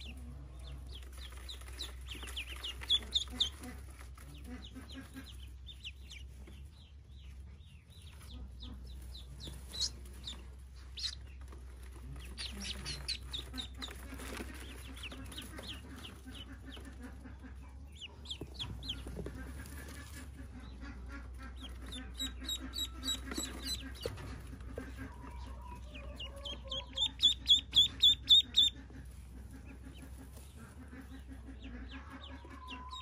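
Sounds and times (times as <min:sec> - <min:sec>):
ducklings peeping: 0:00.0 - 0:33.0.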